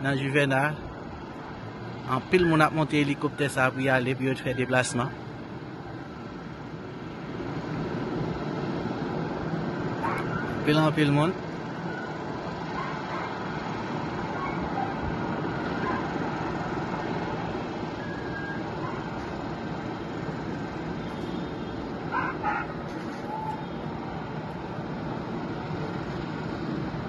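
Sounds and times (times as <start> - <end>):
steady background noise: 0.0 - 27.0
dog barking: 10.0 - 10.5, 12.8 - 13.4, 14.3 - 15.0, 15.8 - 16.2, 18.8 - 19.1, 22.1 - 23.5.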